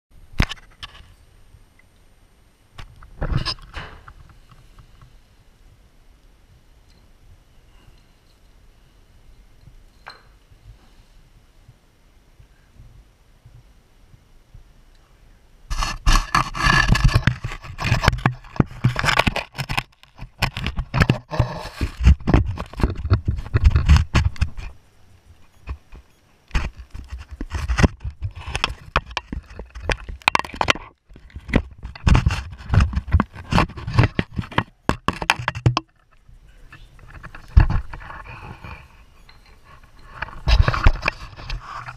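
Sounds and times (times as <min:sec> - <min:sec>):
camera scraping and knocking: 0:00.4 - 0:01.2, 0:02.8 - 0:05.1, 0:15.7 - 0:41.9.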